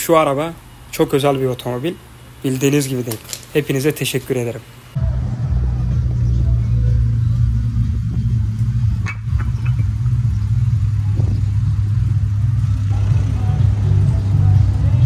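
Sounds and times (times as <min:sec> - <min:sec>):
car engine rumbling at low revs: 0:04.9 - 0:15.0.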